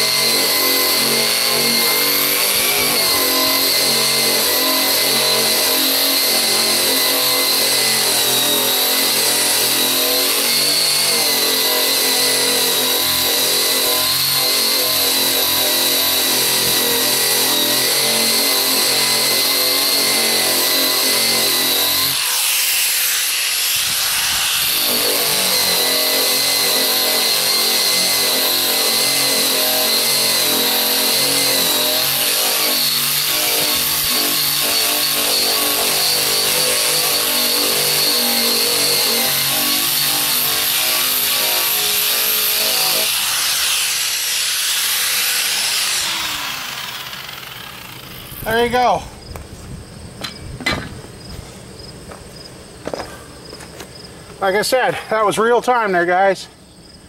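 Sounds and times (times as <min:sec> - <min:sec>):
abrasive grinding paint off metal: 0:00.0 - 0:48.7
motor whine: 0:41.9 - 0:48.5.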